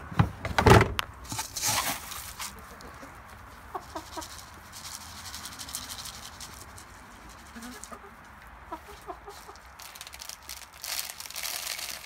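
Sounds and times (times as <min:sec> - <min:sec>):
rustling: 0:01.2 - 0:12.0
hens clucking: 0:01.8 - 0:10.0.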